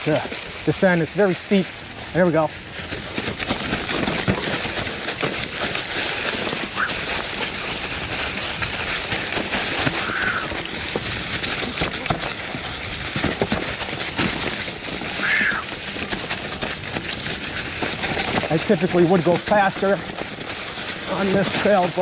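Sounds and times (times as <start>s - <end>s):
bike rattling over bumps: 0.0s - 22.0s
tyres crunching through leaves: 0.0s - 22.0s.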